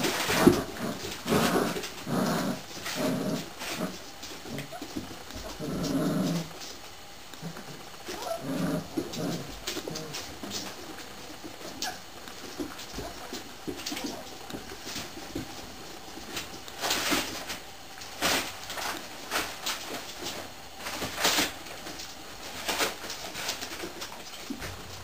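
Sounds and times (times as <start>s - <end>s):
puppies rustling: 0.0s - 25.0s.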